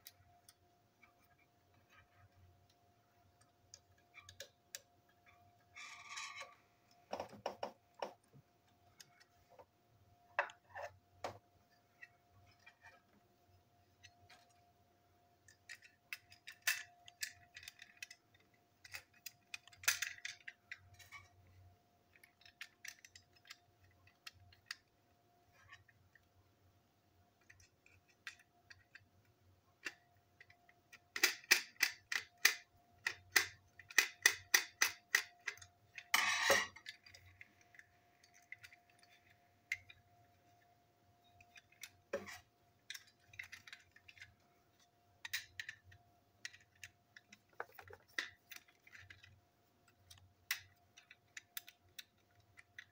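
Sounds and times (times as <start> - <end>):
plastic parts clicking: 3.2 - 9.3, 15.4 - 21.4, 22.1 - 24.9, 27.4 - 40.2, 41.2 - 52.9.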